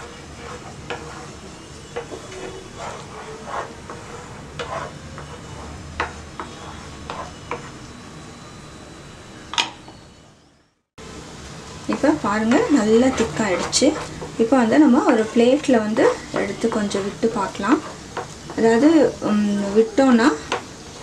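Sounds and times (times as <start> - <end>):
wooden spatula scraping a pan: 0.0 - 7.9, 11.9 - 21.0
low cooking hiss: 10.3 - 21.0.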